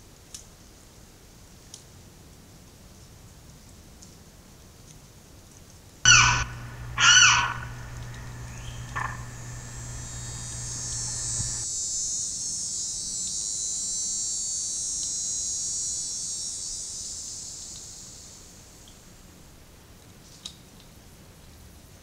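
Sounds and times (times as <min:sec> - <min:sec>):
limpkin wailing calls: 0:06.1 - 0:11.6
low hum: 0:06.1 - 0:11.7
high insect buzz: 0:06.1 - 0:19.3.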